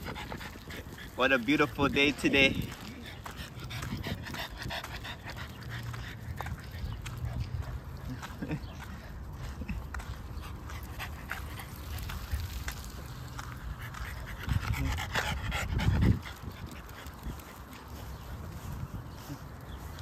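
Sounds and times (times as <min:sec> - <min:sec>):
dogs panting: 0:00.0 - 0:20.0.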